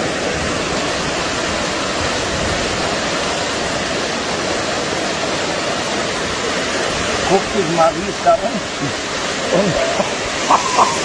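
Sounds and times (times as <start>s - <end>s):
floodwater rushing down a street: 0.0s - 11.0s.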